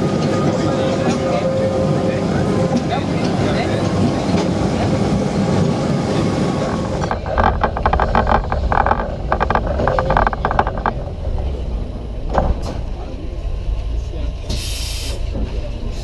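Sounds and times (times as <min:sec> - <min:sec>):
electric tram rumbling on rails: 0:00.0 - 0:16.0
metallic rattling and clattering: 0:06.6 - 0:12.8.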